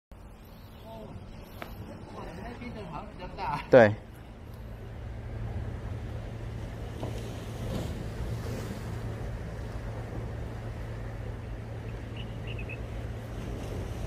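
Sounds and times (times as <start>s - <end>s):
steady low hum: 0.1s - 14.0s
water noise: 0.1s - 14.0s
wind: 0.1s - 14.0s.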